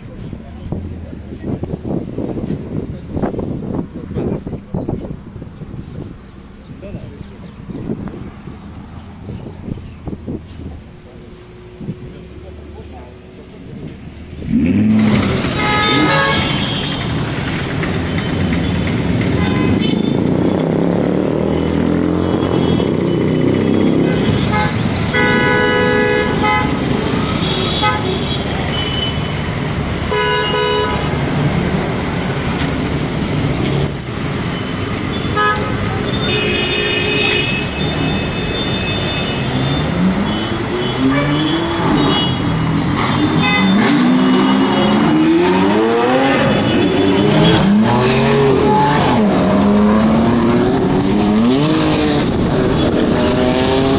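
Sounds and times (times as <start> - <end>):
sports car engines revving: 0.0 - 53.9
traffic noise: 0.0 - 53.9
car horns honking: 14.6 - 17.4, 18.2 - 20.4, 22.2 - 32.1, 33.8 - 50.2.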